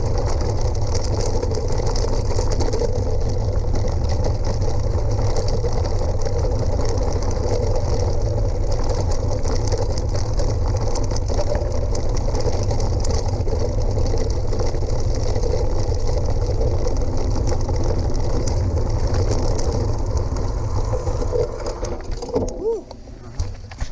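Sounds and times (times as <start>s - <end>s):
bike tyres crunching on gravel: 0.0s - 23.9s.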